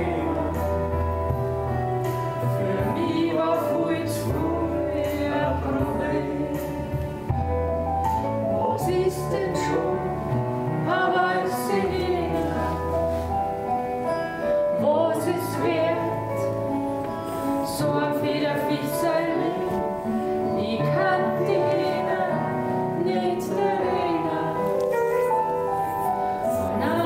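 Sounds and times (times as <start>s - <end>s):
man and woman singing: 0.0s - 1.0s, 2.5s - 7.3s, 8.6s - 13.2s, 14.8s - 16.6s, 17.6s - 25.3s, 26.5s - 27.0s
recorded music accompaniment: 0.0s - 27.0s.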